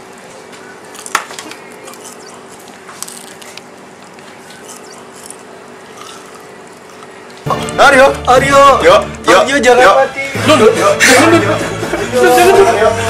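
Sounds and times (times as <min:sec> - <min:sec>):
chewing crispy chicken skin: 0:00.8 - 0:07.5.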